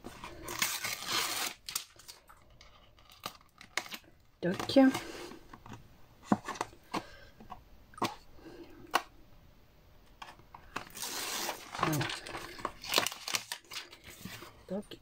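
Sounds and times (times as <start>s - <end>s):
paper rustling: 10.7s - 14.6s.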